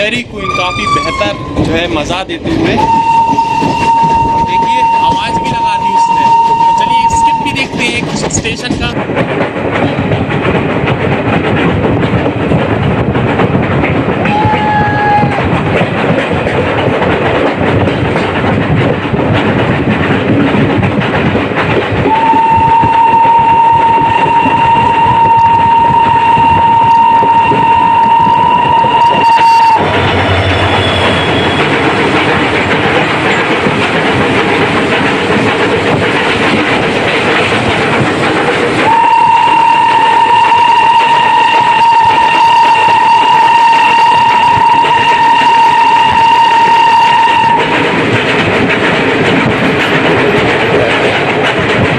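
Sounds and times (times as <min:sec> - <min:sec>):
steam train rail clatter: 0:00.0 - 0:51.9
steam train whistle: 0:02.7 - 0:07.6, 0:14.3 - 0:15.4, 0:22.1 - 0:31.7, 0:38.8 - 0:47.7.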